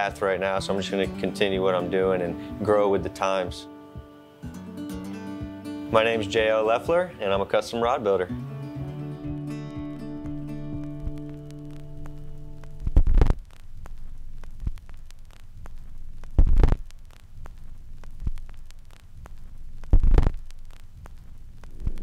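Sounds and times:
electrical hum: 0:00.0 - 0:22.0
static crackle: 0:00.0 - 0:22.0.

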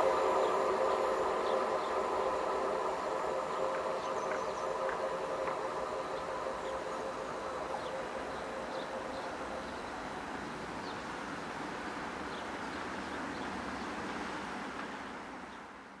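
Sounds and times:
train rumbling: 0:00.0 - 0:16.0.

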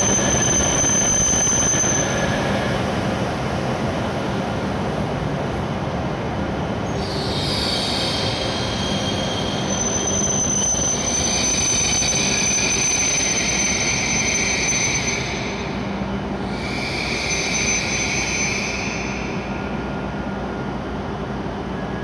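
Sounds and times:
lower wheel squeal: 0:00.0 - 0:03.0, 0:06.8 - 0:20.6
train wheels squealing: 0:00.0 - 0:03.2, 0:06.8 - 0:22.0
train rolling rumble: 0:00.0 - 0:22.0.

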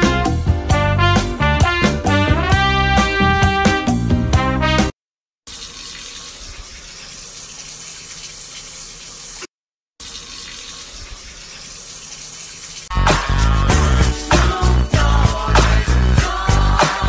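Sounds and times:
water pouring into a bathtub: 0:05.5 - 0:12.9.

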